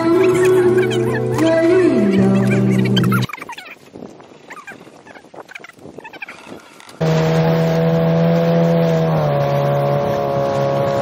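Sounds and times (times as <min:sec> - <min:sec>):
water noise: 0:00.0 - 0:11.0
wind: 0:00.0 - 0:11.0
outboard motor running: 0:06.8 - 0:11.0.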